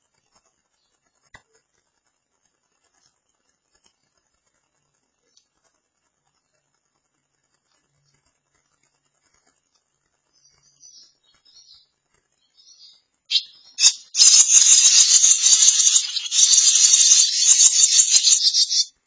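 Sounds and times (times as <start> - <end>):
nestlings begging calls: 12.6 - 18.9.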